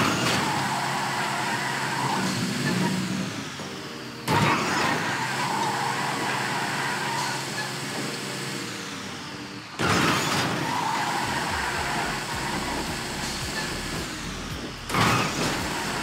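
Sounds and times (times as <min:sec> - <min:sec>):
vehicle engine running: 0:00.0 - 0:16.0
tyre and track noise: 0:09.8 - 0:16.0.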